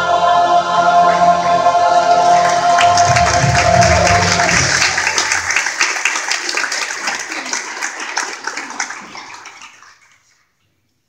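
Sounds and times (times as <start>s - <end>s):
held accompaniment chord: 0.0s - 5.4s
congregation applauding: 2.2s - 10.4s.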